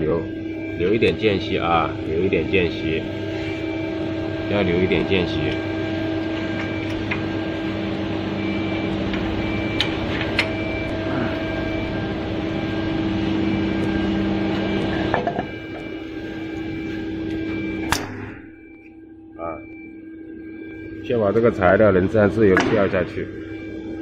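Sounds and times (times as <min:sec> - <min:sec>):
wood lathe machine hum: 0:00.0 - 0:17.8.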